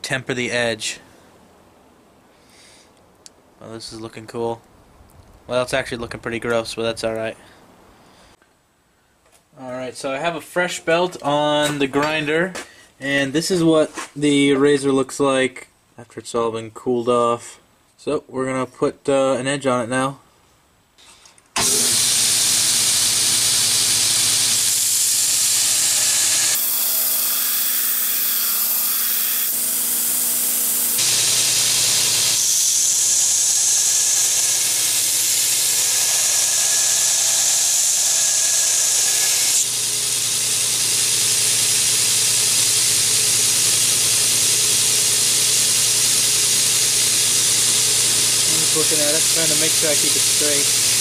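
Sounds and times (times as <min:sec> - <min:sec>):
belt grinder hissing on steel: 0:21.0 - 0:51.0
motor hum: 0:21.6 - 0:51.0.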